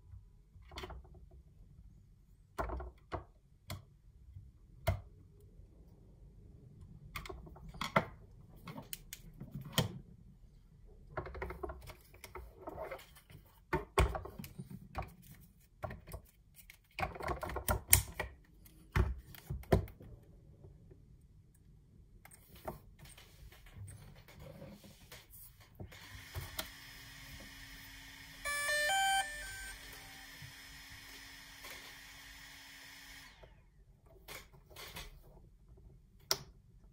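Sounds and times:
electronic startup beeps: 28.5 - 30.4.

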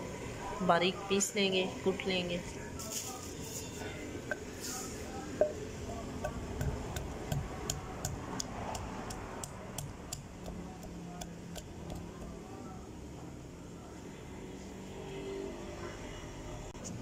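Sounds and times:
pestle pounding in a mortar: 6.2 - 12.1.

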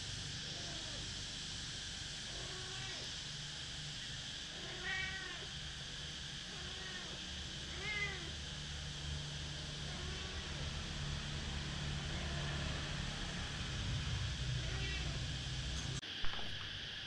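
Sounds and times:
cat meowing: 2.3 - 3.1, 4.5 - 5.5, 6.5 - 8.4, 14.6 - 15.2.

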